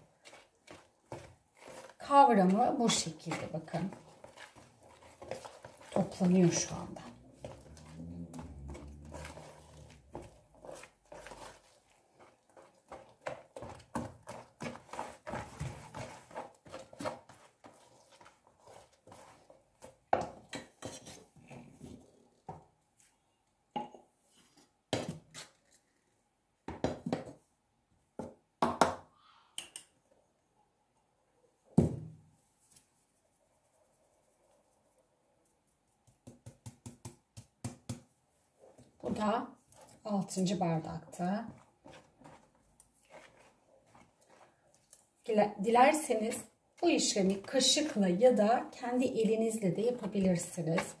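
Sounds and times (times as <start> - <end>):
whisk clicking and scraping dough: 0.0 - 22.6, 35.5 - 51.0.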